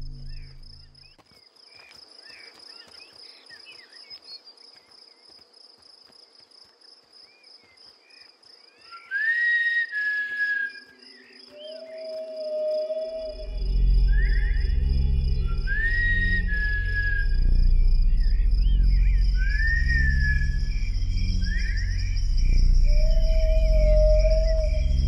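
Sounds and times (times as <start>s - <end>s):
crickets trilling: 0.0s - 25.0s
short insect chirps: 6.6s - 25.0s
loud breathy whistle: 15.4s - 17.5s.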